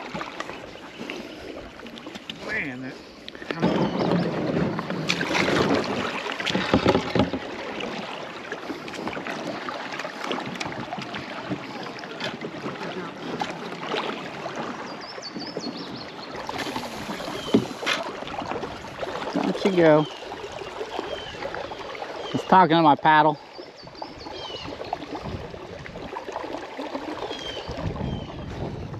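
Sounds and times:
knocks against kayak hull: 3.5s - 7.9s, 17.4s - 18.1s.

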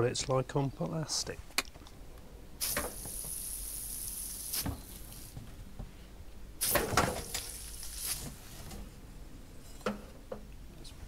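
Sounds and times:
valve hissing: 2.6s - 5.4s, 6.6s - 8.5s.

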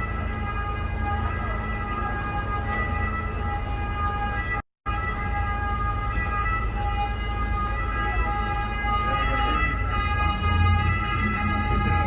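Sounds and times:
boat engine rumbling: 0.0s - 12.0s
high-pitched engine whine: 6.4s - 12.0s.

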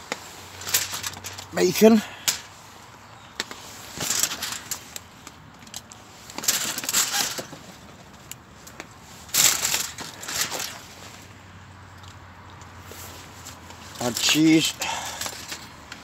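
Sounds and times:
aluminium foil crinkling: 3.6s - 7.7s, 9.2s - 11.1s.

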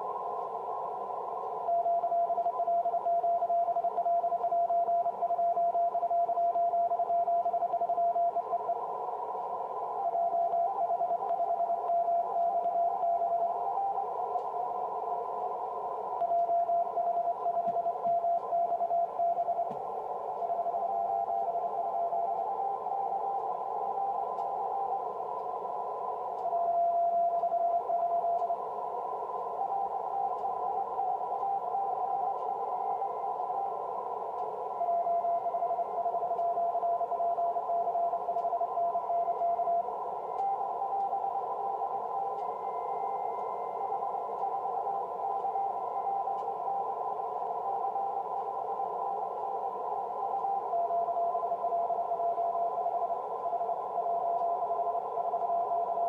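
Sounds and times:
receiver hiss: 0.0s - 56.0s.

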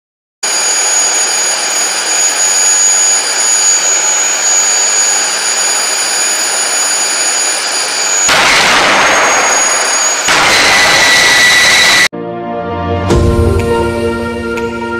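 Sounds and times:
turbojet engine whining: 0.4s - 12.1s.

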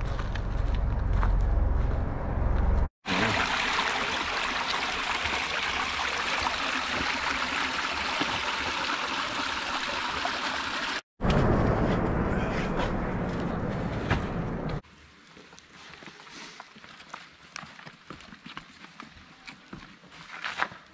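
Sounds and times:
low rumble: 0.0s - 2.9s, 11.2s - 14.8s
creek water rippling over stones: 3.1s - 11.0s.

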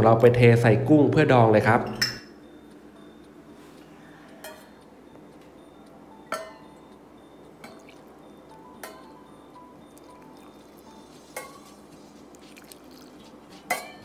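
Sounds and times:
utensils clinking against dishes: 1.8s - 2.4s, 4.3s - 4.8s, 6.3s - 6.8s, 8.8s - 9.2s, 10.2s - 14.0s.

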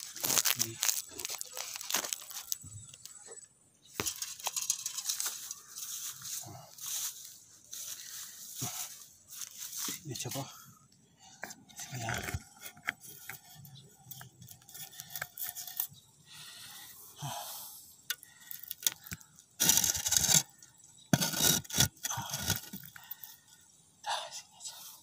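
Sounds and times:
loud rubbing scrapes: 21.1s - 22.7s.

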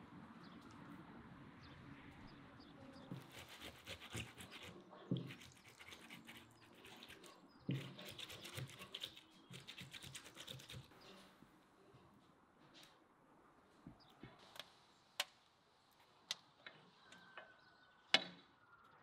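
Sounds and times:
tomato grating on metal grater: 3.2s - 11.0s.

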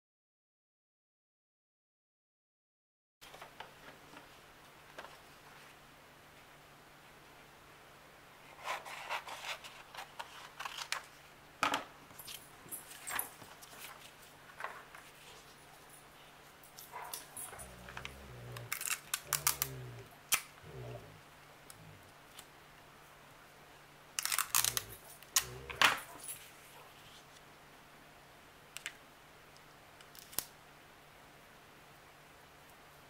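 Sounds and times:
paper rustling: 3.2s - 5.8s, 8.4s - 11.2s, 12.2s - 15.8s
tape pulled from dispenser and torn: 18.7s - 19.7s, 24.2s - 25.5s.

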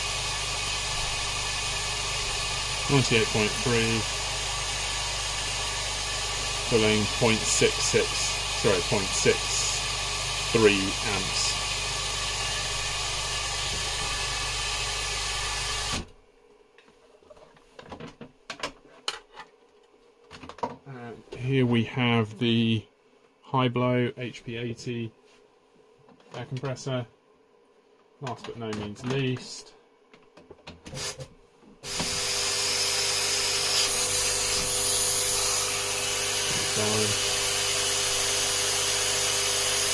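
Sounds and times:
air pump electric hum: 0.0s - 16.1s, 30.9s - 39.9s
clicks and knocks of handling: 16.8s - 20.8s, 28.2s - 29.5s.

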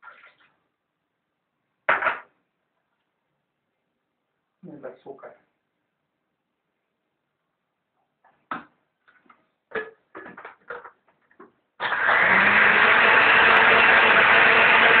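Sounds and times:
blender running: 11.8s - 15.0s.

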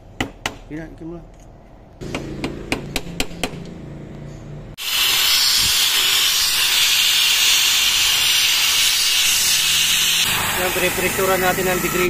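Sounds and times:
pressurized spray hissing: 4.8s - 12.0s.

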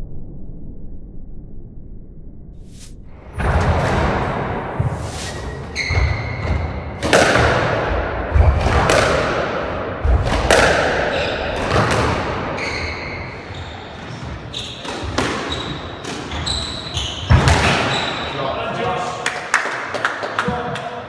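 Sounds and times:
squash ball striking rackets and walls: 3.2s - 18.2s
shoes squeaking on wooden floor: 4.9s - 6.4s, 12.6s - 18.4s.

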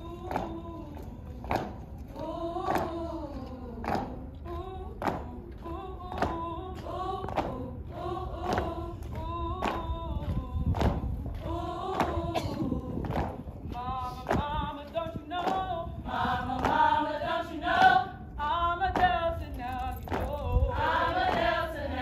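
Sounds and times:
foot stomps: 0.1s - 2.1s, 8.5s - 15.8s, 18.9s - 21.6s
women chanting in unison: 2.1s - 9.9s, 11.4s - 12.9s, 15.5s - 19.1s, 20.7s - 22.0s.

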